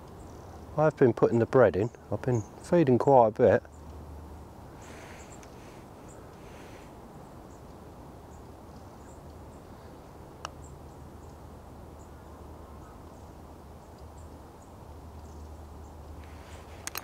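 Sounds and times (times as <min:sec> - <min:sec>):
high chirps of birds or insects: 0:00.0 - 0:17.0
sharp click: 0:16.8 - 0:17.0.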